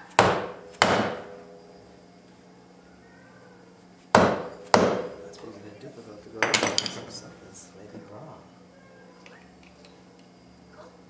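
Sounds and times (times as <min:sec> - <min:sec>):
hammer striking metal: 0:00.2 - 0:01.6, 0:04.2 - 0:05.2.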